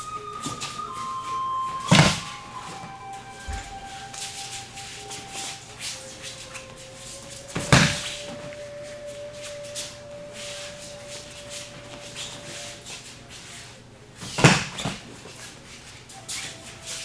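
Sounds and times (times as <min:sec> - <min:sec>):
faint steady hum: 0:00.0 - 0:17.0
cotton uniforms rustling: 0:00.2 - 0:17.0
bare feet shuffling on mat: 0:02.8 - 0:17.0.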